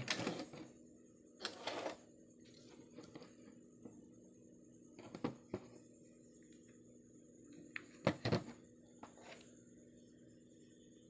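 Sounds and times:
steady low hum: 0:00.0 - 0:11.0
plastic scraping on wooden desk: 0:01.4 - 0:02.0.

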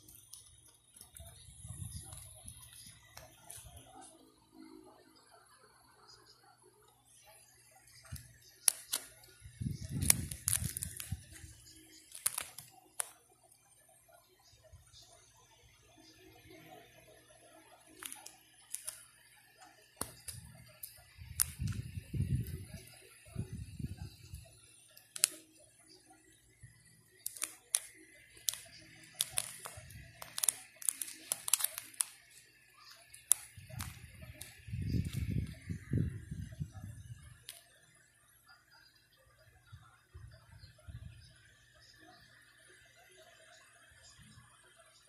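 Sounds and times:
plastic pages crinkling and clicking: 0:00.0 - 0:04.2, 0:07.2 - 0:13.2, 0:17.9 - 0:19.0, 0:19.9 - 0:24.2, 0:25.0 - 0:25.6, 0:27.2 - 0:35.9
plastic coin pockets crackling: 0:08.0 - 0:13.1, 0:17.9 - 0:19.0, 0:27.2 - 0:35.6.

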